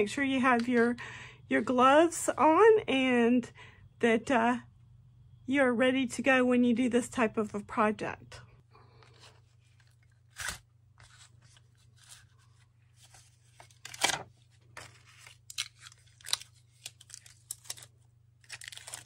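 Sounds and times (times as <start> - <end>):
paper peeling crackles: 9.8 - 19.0.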